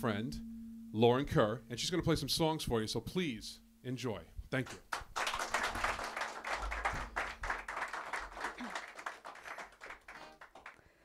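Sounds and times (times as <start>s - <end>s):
audience applauding: 4.7s - 10.9s.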